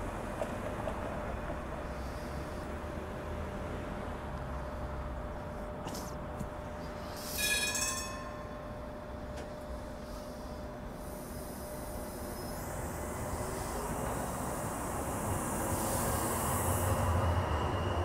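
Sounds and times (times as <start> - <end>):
tram rumbling along track: 0.0 - 18.0
high-pitched ringing tone: 7.2 - 9.0.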